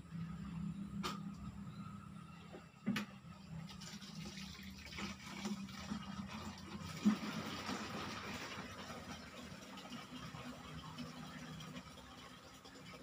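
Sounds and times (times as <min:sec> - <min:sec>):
tap water into watering can: 0:02.9 - 0:13.0.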